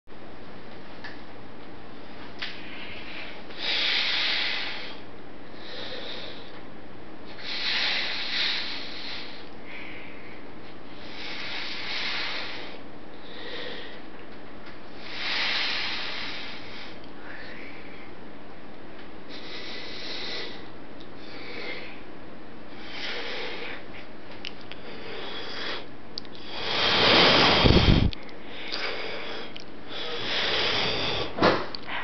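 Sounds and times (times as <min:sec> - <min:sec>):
person breathing harshly: 0:02.5 - 0:06.6, 0:07.3 - 0:14.1, 0:14.9 - 0:18.1, 0:19.3 - 0:22.1, 0:22.7 - 0:24.1, 0:24.7 - 0:32.0.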